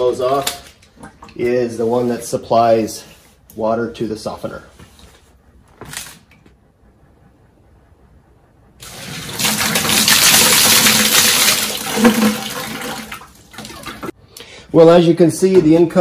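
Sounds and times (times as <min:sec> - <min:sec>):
water gushing and spraying: 0:08.8 - 0:14.1.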